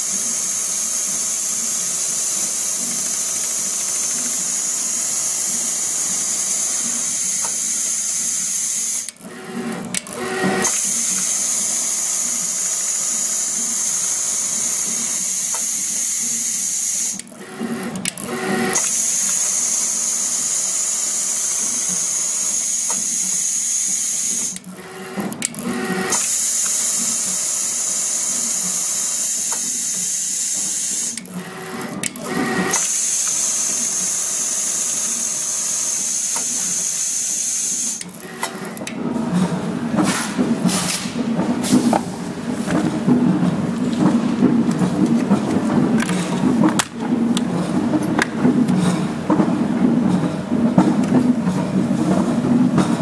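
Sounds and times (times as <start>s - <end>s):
sewing machine stitching: 0.0s - 39.5s.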